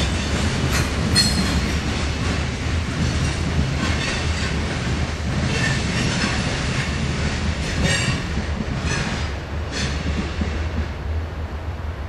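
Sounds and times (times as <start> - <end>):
train wheels rumbling on rail: 0.0 - 12.0
high wheel squeals: 1.2 - 1.6.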